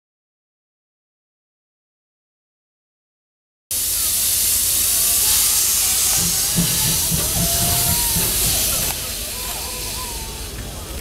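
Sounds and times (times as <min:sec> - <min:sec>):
steam locomotive hissing steam: 0:03.7 - 0:11.0.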